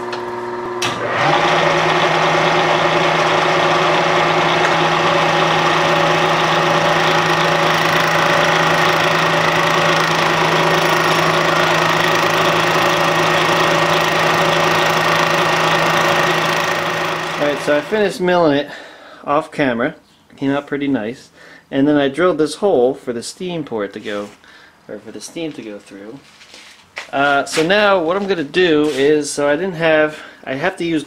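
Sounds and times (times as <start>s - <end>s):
milling cutter cutting cast iron: 0.0s - 18.0s
milling machine hum: 0.0s - 18.0s.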